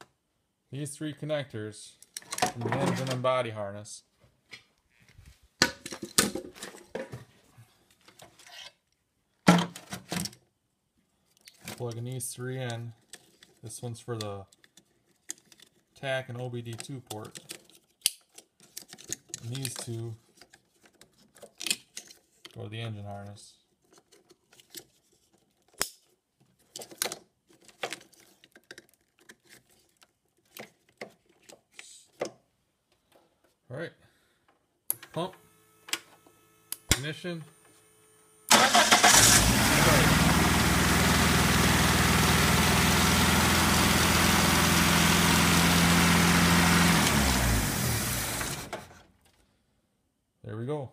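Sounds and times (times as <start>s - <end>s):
plastic connectors clicking and rattling: 11.3s - 16.0s, 16.6s - 22.6s, 23.8s - 32.4s.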